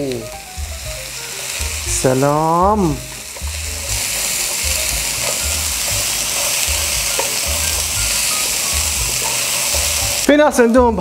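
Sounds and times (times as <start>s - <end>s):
food sizzling in a frying pan: 0.0s - 11.0s
wooden spatula stirring and scraping: 3.2s - 8.3s.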